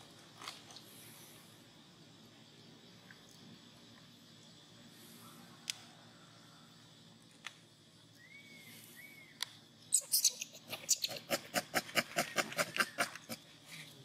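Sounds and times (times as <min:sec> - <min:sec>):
monkey squeaks: 0:09.9 - 0:11.4.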